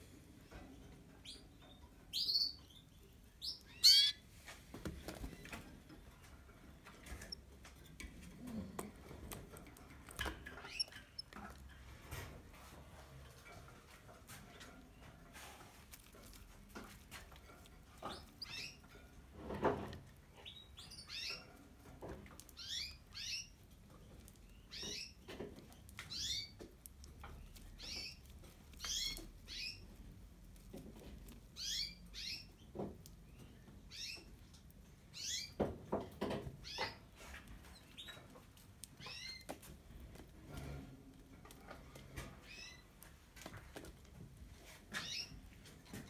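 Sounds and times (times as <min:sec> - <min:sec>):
canaries chirping: 0:00.3 - 0:04.4, 0:05.0 - 0:12.3, 0:16.4 - 0:30.2, 0:31.5 - 0:39.8, 0:41.7 - 0:42.9, 0:44.8 - 0:46.0.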